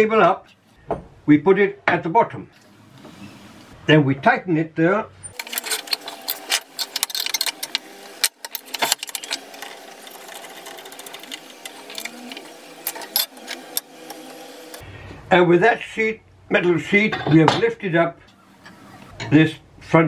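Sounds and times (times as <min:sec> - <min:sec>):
metallic clicking and rattling: 0:05.3 - 0:13.9.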